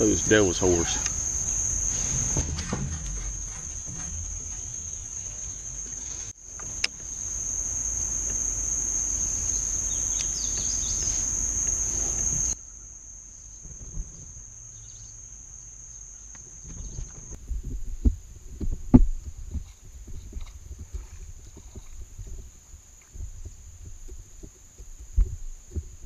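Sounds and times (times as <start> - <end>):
high-pitched insect drone: 0.0 - 16.9
low rumble: 1.0 - 6.4.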